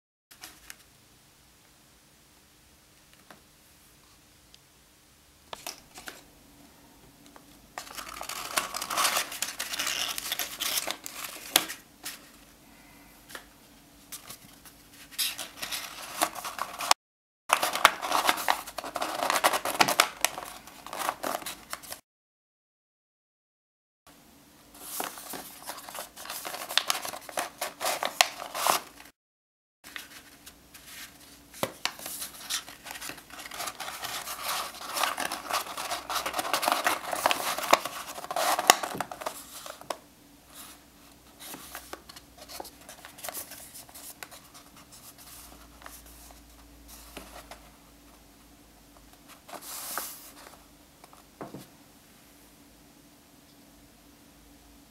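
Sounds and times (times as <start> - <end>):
paper rustling and crinkling: 7.8 - 12.4, 14.1 - 22.0, 24.8 - 29.1, 29.9 - 47.8, 49.1 - 51.6.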